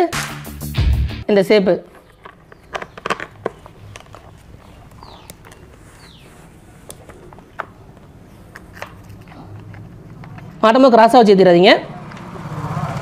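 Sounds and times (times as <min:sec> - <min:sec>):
plastic parts clicking and knocking: 0:01.8 - 0:05.8, 0:06.8 - 0:10.6.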